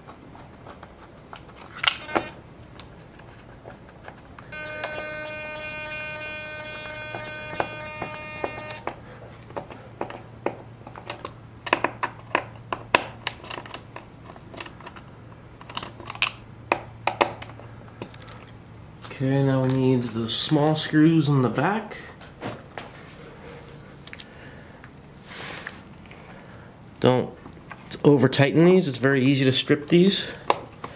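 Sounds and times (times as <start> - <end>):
steady buzzing tone: 4.5 - 9.2.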